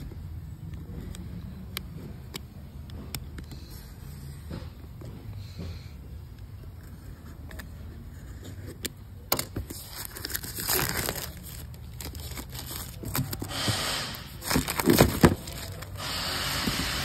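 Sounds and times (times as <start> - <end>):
plastic shrink-wrap crinkling: 9.6 - 16.5.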